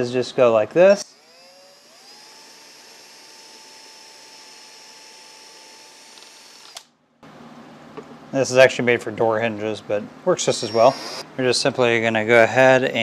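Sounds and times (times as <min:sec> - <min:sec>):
cordless drill whining: 0:01.0 - 0:06.9, 0:10.6 - 0:11.2.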